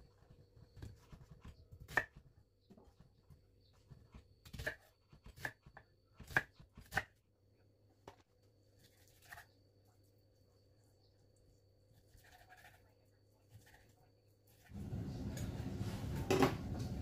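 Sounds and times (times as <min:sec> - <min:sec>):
knife chopping on wooden board: 0:04.4 - 0:07.1.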